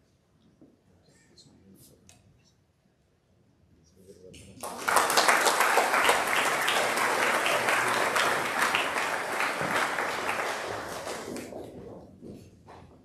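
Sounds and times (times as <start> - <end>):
audience applauding: 4.6 - 11.8.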